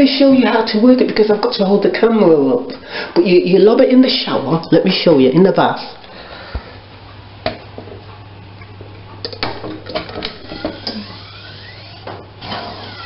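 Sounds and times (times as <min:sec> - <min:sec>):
steady low hum: 0:00.0 - 0:13.0
drain pump clicks and knocks: 0:09.2 - 0:11.0.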